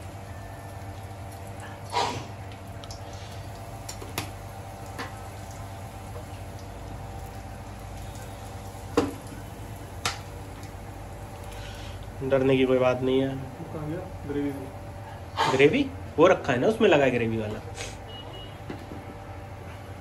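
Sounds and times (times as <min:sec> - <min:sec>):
spices sizzling in hot oil: 0:00.0 - 0:15.1
steady low hum: 0:00.0 - 0:20.0.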